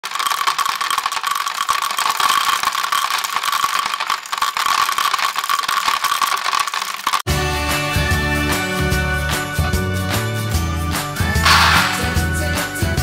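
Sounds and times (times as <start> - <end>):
chickpeas rattling onto table: 0.0 - 7.3.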